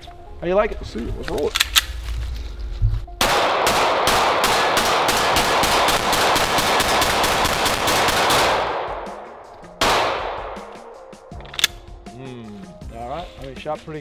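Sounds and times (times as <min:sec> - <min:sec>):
pistol shots: 0:03.2 - 0:09.2, 0:09.8 - 0:11.0.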